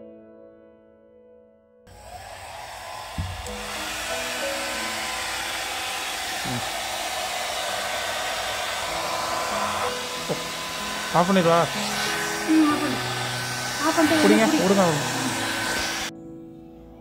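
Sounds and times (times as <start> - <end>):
hair dryer blowing: 1.9 - 16.1
single knock: 3.2 - 3.6.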